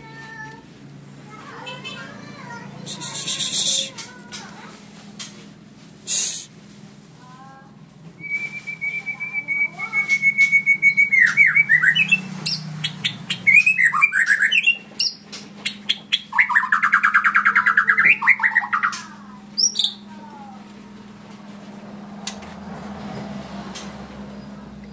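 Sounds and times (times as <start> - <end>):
bird singing whistled song: 8.2 - 19.0.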